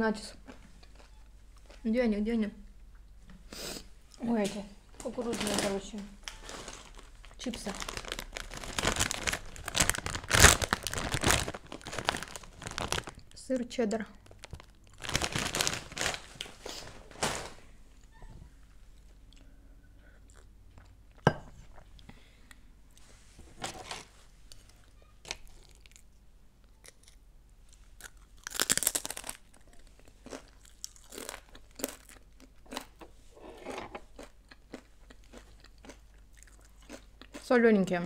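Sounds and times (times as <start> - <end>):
tortilla chips crunching: 6.2 - 13.4, 14.2 - 16.5, 24.5 - 26.1, 26.8 - 33.0, 34.1 - 37.4.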